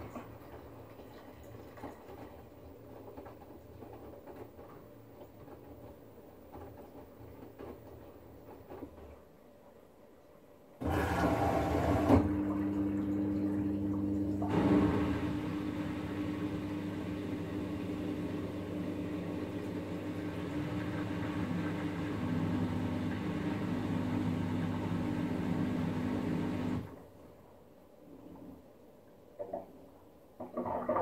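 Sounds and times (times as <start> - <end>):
washing machine drain pump humming: 10.8 - 27.1.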